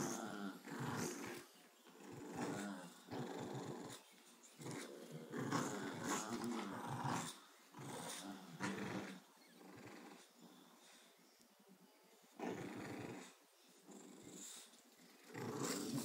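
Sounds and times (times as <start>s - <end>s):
dogs growling in play: 0.0s - 11.0s, 12.3s - 16.0s.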